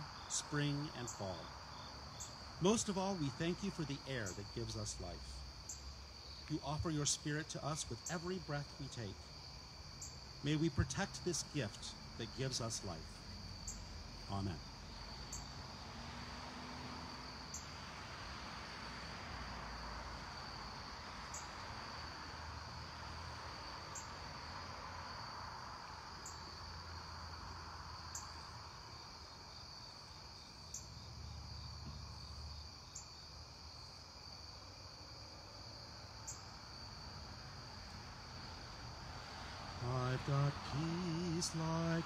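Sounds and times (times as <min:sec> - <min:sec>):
crickets chirring: 0:00.0 - 0:42.0.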